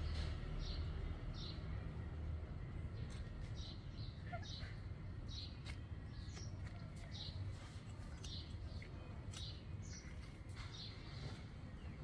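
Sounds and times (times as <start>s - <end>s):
puppies yelping: 4.2s - 4.8s.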